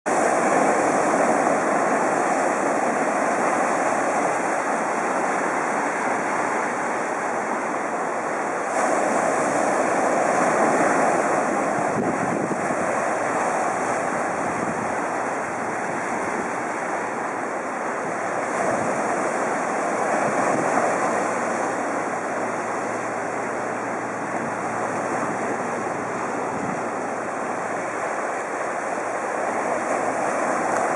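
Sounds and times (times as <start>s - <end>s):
ocean surf breaking over rocks: 0.1s - 30.9s.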